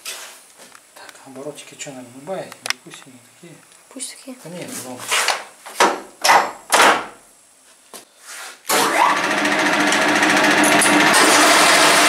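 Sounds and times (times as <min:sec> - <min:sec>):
lathe running with rattle and hum: 0:08.8 - 0:12.0.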